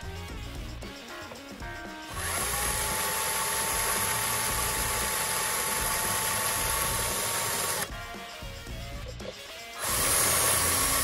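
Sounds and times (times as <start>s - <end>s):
electric drill whining: 2.0s - 7.9s, 9.8s - 11.0s.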